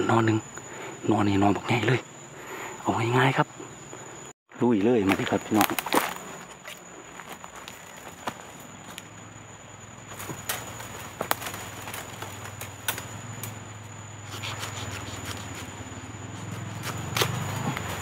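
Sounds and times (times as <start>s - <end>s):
twigs snapping and crackling: 5.0s - 9.1s, 10.1s - 13.6s, 16.7s - 18.0s.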